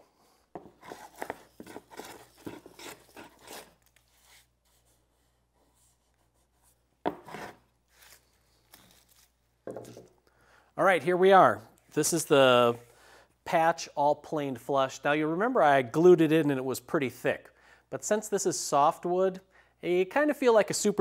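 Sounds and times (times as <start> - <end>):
hand plane shaving wood: 0.6 - 3.7.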